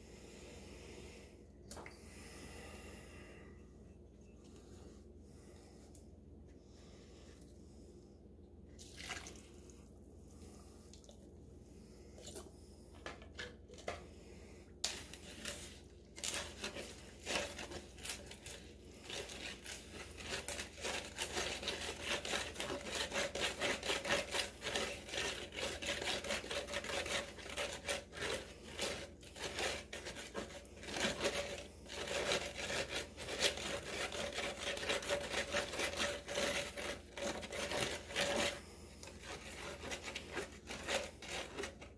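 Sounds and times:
stick scraping wet cement: 14.8 - 41.9.

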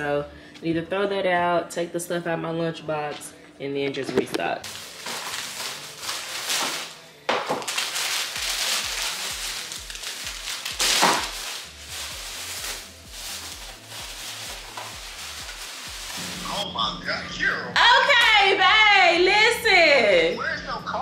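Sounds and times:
plastic bags rustling: 4.6 - 16.5
background music with bass beat: 8.4 - 17.0.

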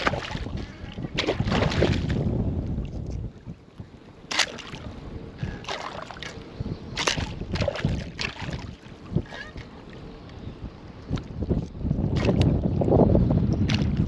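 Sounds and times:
sharp water splashes: 0.0 - 2.2, 4.3 - 4.9, 5.6 - 6.4, 7.0 - 8.8, 13.7 - 14.0
shallow water sloshing: 0.0 - 10.4, 11.0 - 12.8, 13.6 - 14.0.

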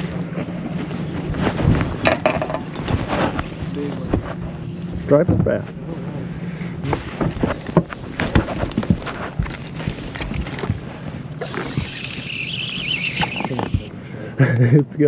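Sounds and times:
wind and water noise: 0.0 - 15.0
clicks and knocks of gear: 6.9 - 10.9
high wavering buzz: 11.2 - 14.0.

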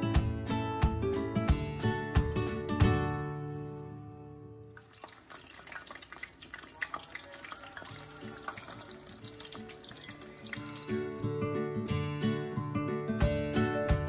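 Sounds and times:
acoustic guitar music: 0.0 - 4.8, 7.5 - 14.0
oil sizzling in a frying pan: 4.8 - 11.2.

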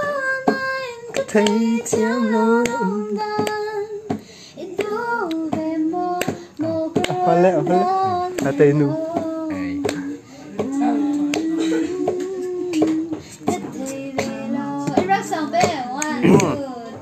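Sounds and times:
woman singing: 0.0 - 17.0.

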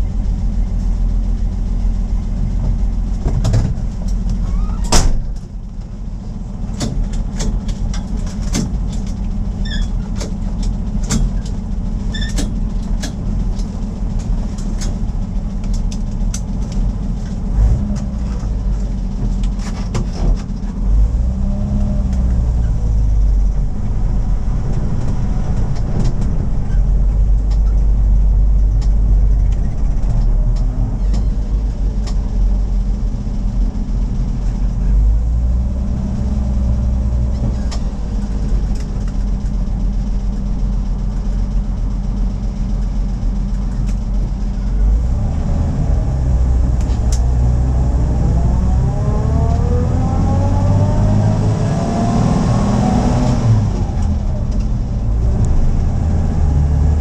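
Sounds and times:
car engine running: 0.0 - 57.0
sharp clicks and rattles: 6.6 - 20.8, 21.8 - 34.7, 37.1 - 44.6.

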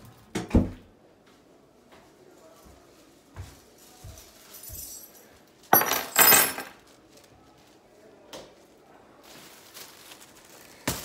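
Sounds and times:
rustling: 2.0 - 11.0
objects clinking and clattering: 4.4 - 6.9.

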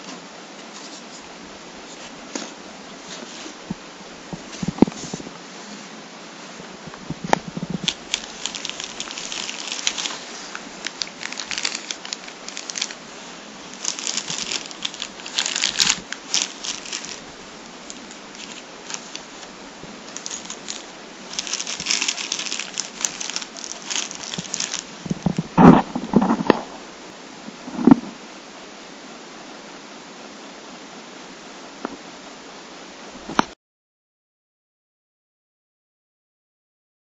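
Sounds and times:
plastic bags crinkling: 6.9 - 26.4.

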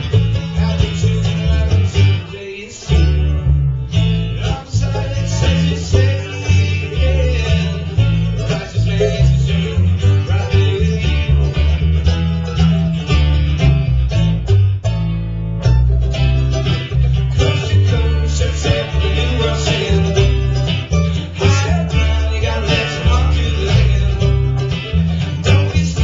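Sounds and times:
acoustic guitar: 0.0 - 26.0
mandolin: 0.0 - 26.0
upright bass: 0.0 - 26.0.

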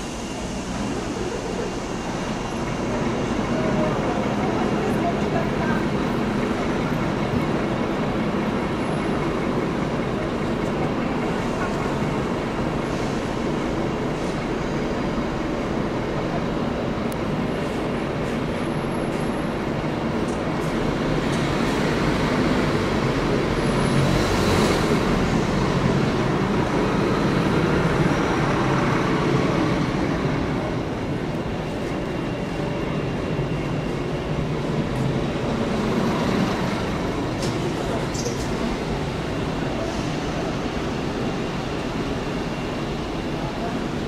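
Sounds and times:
diesel locomotive idling: 0.0 - 44.0.

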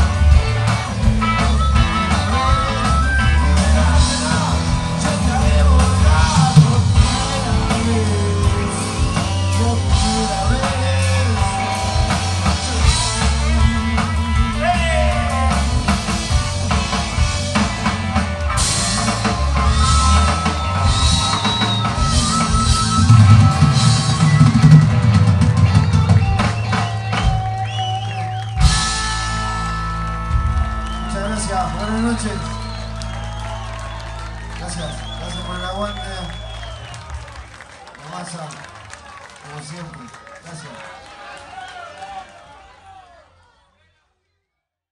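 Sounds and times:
drum kit: 0.0 - 37.4
electric guitars: 0.0 - 37.5
rock band playing live: 0.0 - 37.7
person singing: 2.3 - 14.0.

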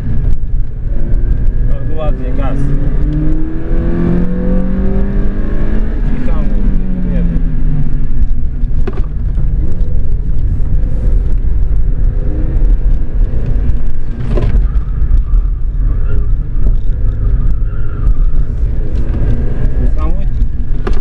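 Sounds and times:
car engine under throttle: 0.0 - 21.0
road and wind noise: 0.0 - 21.0.

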